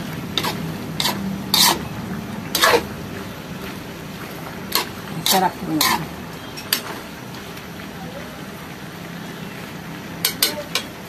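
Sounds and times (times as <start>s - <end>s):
metal spatula scraping a wok: 0.3s - 1.9s, 2.5s - 2.9s, 4.7s - 7.0s, 10.2s - 11.0s.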